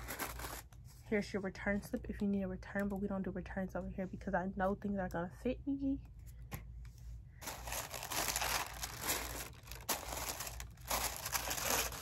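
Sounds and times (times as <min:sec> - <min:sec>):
tissue paper crinkling: 0:00.0 - 0:00.9, 0:07.4 - 0:12.0.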